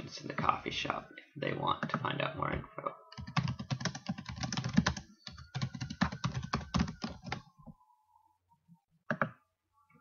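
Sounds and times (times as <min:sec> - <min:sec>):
typing on a computer keyboard: 0:03.1 - 0:07.5, 0:09.1 - 0:09.3.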